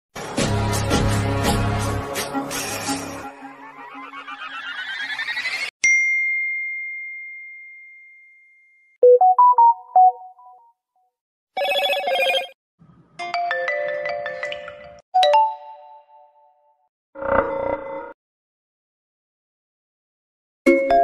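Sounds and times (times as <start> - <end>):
smartphone notification tones: 9.0 - 10.6, 11.6 - 12.5.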